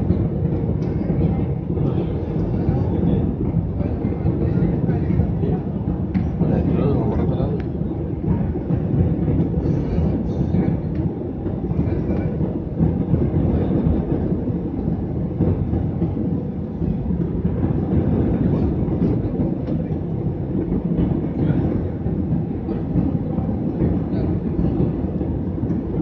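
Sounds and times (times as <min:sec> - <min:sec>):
airliner cabin engine roar: 0:00.0 - 0:26.0.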